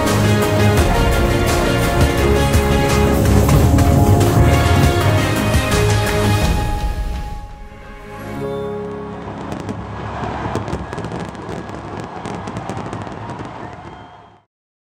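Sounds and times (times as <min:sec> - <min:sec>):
fireworks crackling: 0:00.0 - 0:07.1, 0:07.9 - 0:14.3
held music notes: 0:00.6 - 0:10.0.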